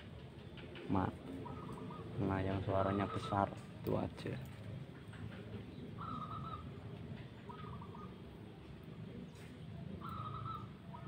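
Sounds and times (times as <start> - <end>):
dove cooing: 5.8 - 6.8, 7.4 - 8.2, 9.8 - 11.0.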